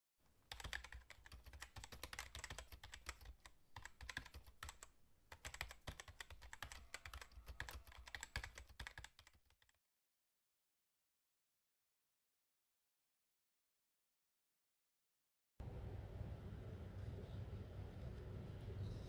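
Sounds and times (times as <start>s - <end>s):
keyboard typing clicks: 0.5s - 9.8s.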